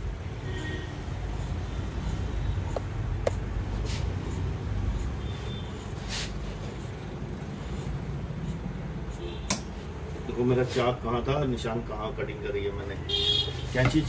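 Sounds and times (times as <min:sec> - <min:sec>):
sharp metallic clicks: 0:09.5 - 0:09.7.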